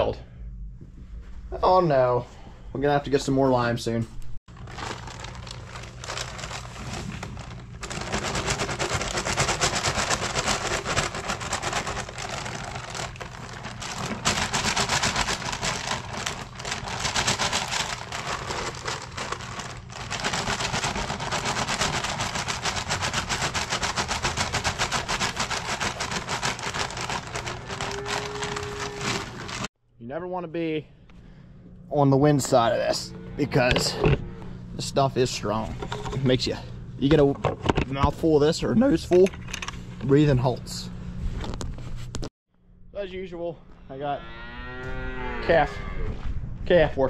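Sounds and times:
paper bag rustling: 4.5s - 29.7s
powder pouring into bucket: 4.5s - 29.7s.

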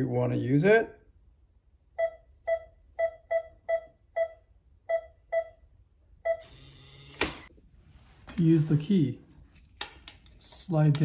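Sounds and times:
keypad beeps: 2.0s - 5.6s.

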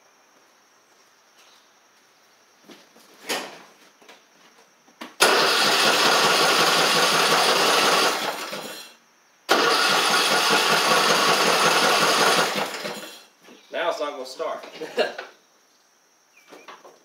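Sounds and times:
electric starter cranking engine: 5.2s - 13.3s.

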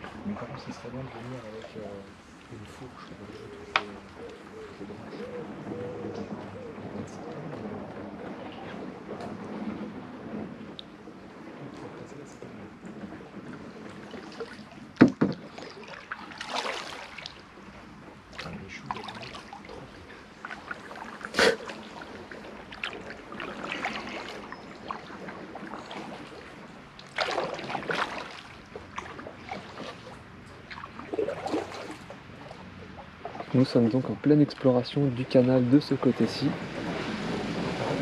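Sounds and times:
kayak paddle splashing water: 0.0s - 38.0s
paddle knocks: 5.2s - 32.1s.

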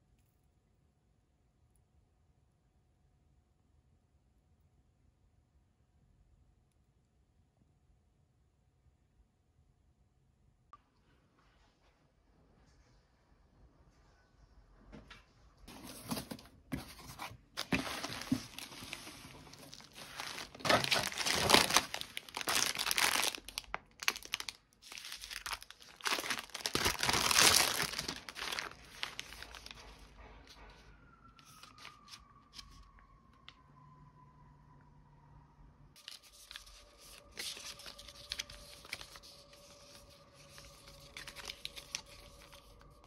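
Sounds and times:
plastic packaging crinkling: 15.7s - 30.0s, 36.0s - 43.0s
cardboard tearing: 19.6s - 29.7s.

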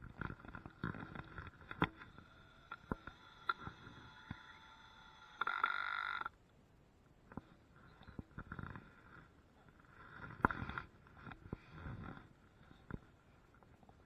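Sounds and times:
small power tool running: 2.2s - 6.3s.

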